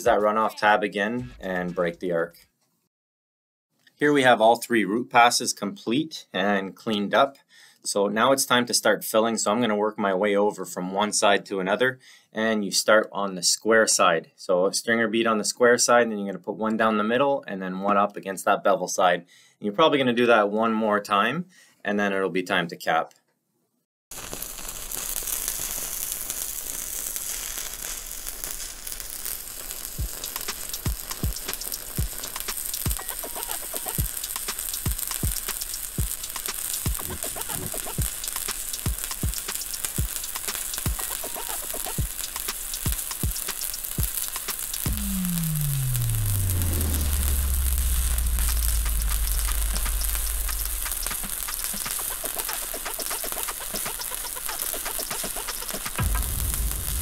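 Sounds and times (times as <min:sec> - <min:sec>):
welding arc sizzling: 0:24.1 - 0:57.0
low thuds: 0:44.9 - 0:51.4, 0:56.0 - 0:57.0
low hum sliding down: 0:44.9 - 0:51.7, 0:56.0 - 0:57.0.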